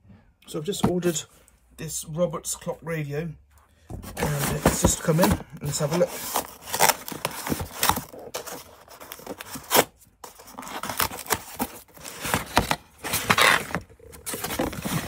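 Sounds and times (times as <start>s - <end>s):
cardboard ripping and rustling: 4.1s - 15.0s.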